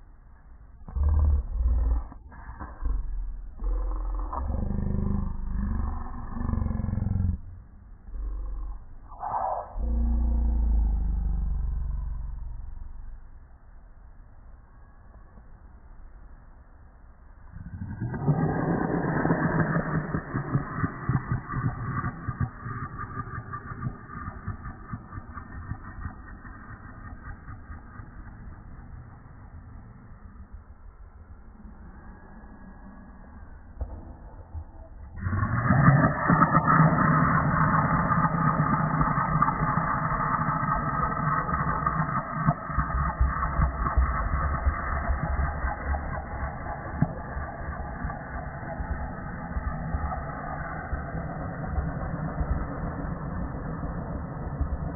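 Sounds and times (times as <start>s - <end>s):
dog growling deeply: 0.9s - 7.5s, 8.1s - 13.2s.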